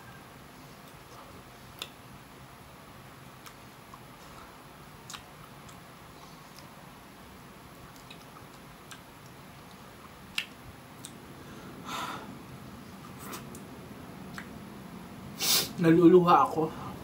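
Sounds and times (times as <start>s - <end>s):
wet mouth sounds eating: 3.4s - 5.8s, 7.9s - 11.2s.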